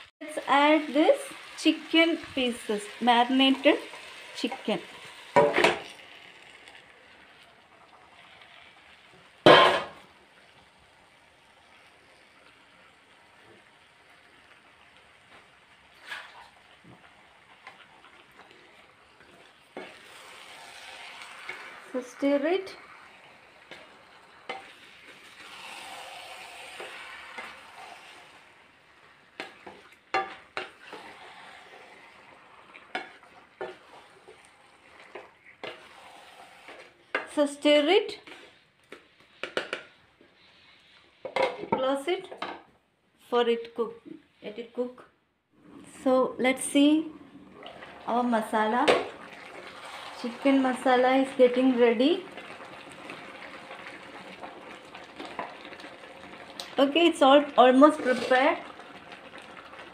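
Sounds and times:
chicken sizzling in a pan: 0.0s - 41.4s, 46.7s - 59.9s
spatula scraping a pan: 16.0s - 16.6s, 17.6s - 28.5s, 29.4s - 37.4s, 38.1s - 41.8s, 57.7s - 58.6s.

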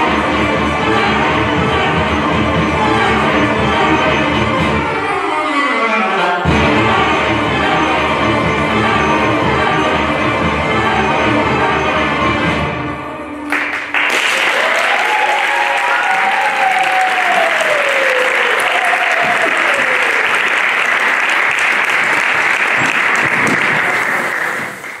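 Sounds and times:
audience applauding: 13.5s - 25.0s
person cheering: 14.5s - 20.4s.

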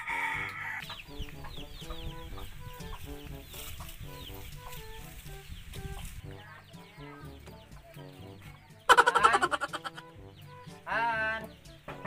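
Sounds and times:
chickens clucking: 0.0s - 12.0s
high peeps falling in pitch: 8.9s - 11.7s.

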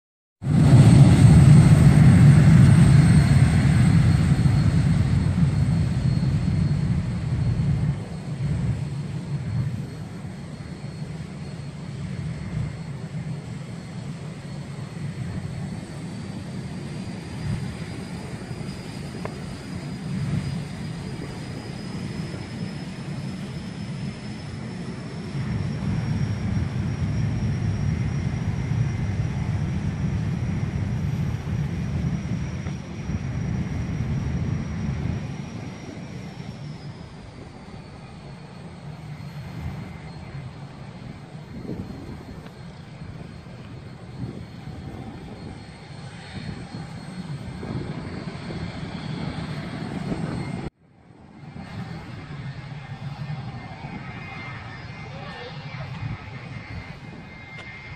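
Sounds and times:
jet engines whining: 0.4s - 57.9s.

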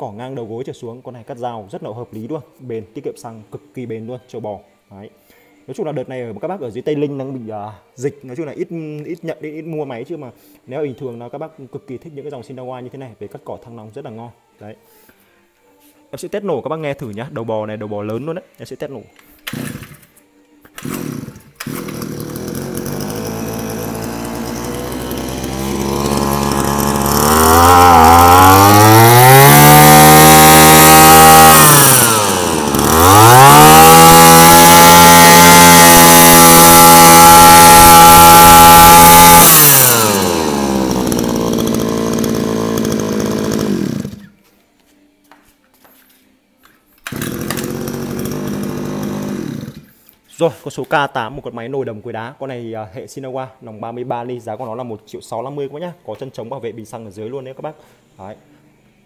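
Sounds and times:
brush cutter engine revving: 19.4s - 20.1s, 20.7s - 44.3s, 47.0s - 49.9s.

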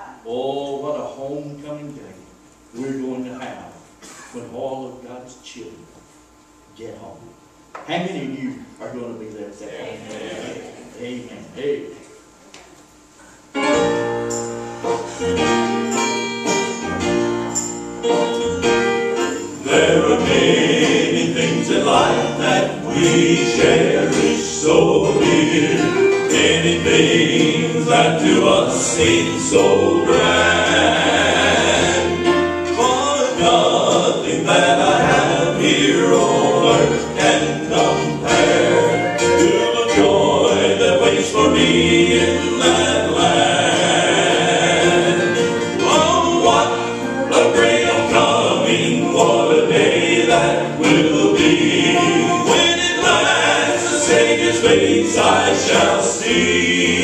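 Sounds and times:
acoustic guitar: 13.2s - 57.0s
male vocal quartet singing: 19.2s - 57.0s.

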